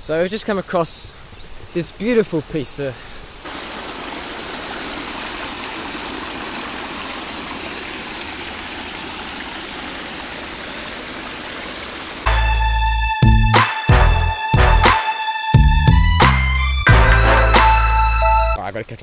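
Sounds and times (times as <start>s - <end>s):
water rushing over rocks: 3.4s - 12.3s
loud music: 12.3s - 18.6s.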